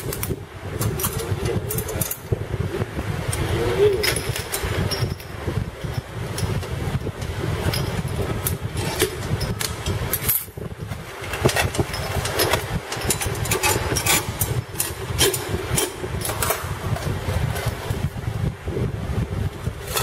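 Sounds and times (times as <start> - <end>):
low mechanical rumble: 0.0 - 20.0
metal clicks of bolts and spanner: 11.3 - 16.6.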